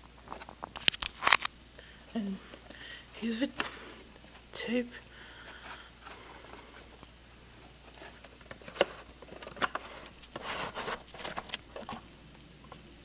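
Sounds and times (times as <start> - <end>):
scraping and rustling: 5.4 - 12.2.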